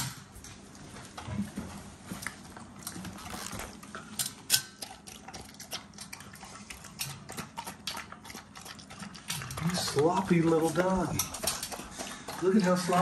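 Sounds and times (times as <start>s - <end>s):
dog lapping from metal bowl: 4.0s - 13.0s.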